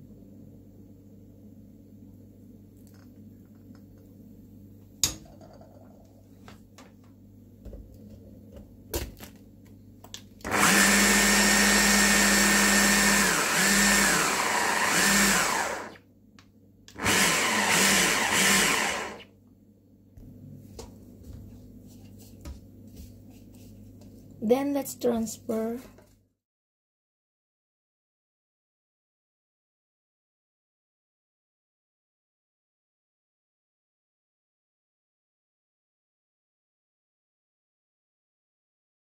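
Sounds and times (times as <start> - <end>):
electric blender grinding: 10.4 - 16.0, 16.9 - 19.3.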